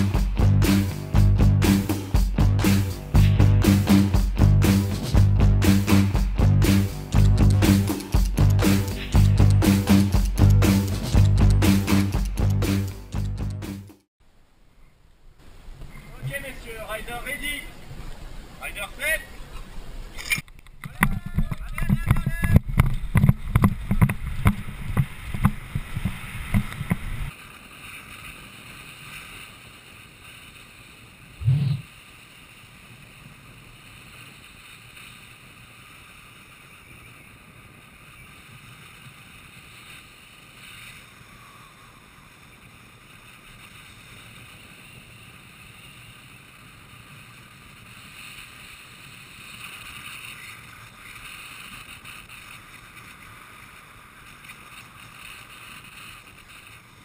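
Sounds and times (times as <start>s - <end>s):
music with steady beat: 0.0s - 14.0s
skate wheels rolling on asphalt: 15.4s - 57.0s
short low thump: 31.4s - 31.8s
wind rushing: 31.4s - 31.8s.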